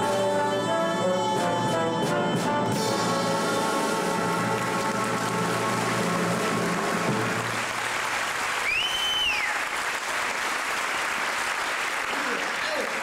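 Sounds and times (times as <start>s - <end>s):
audience applauding: 3.7s - 13.0s
whistle: 8.6s - 9.6s.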